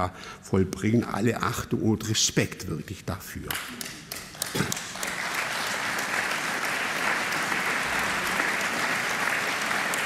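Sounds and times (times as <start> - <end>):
audience applauding: 4.1 - 10.0.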